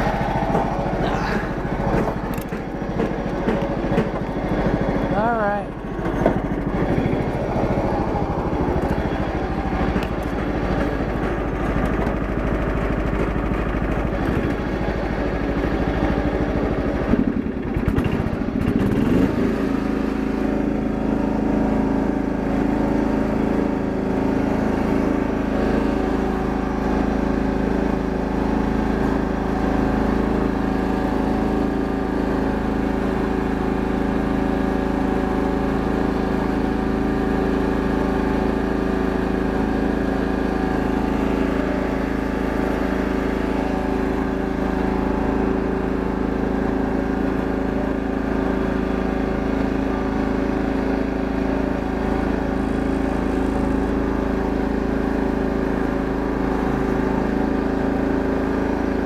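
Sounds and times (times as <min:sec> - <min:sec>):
lawn tractor engine running: 0:00.0 - 0:59.0.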